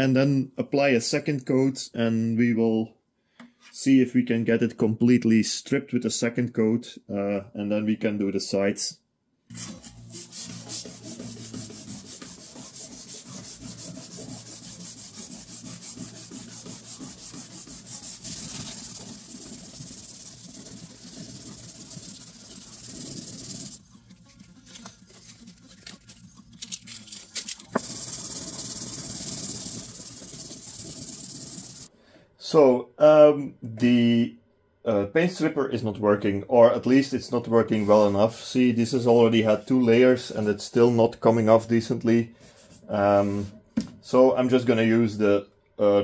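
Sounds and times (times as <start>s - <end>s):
rag rubbing on wood: 9.6s - 26.5s, 27.7s - 31.9s
steady hiss: 27.4s - 31.9s.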